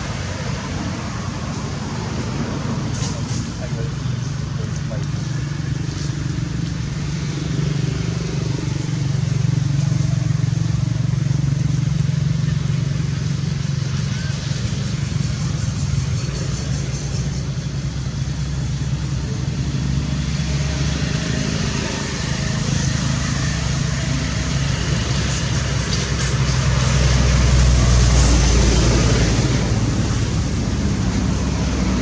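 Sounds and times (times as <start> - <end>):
vehicle engine hum: 0.0 - 32.0.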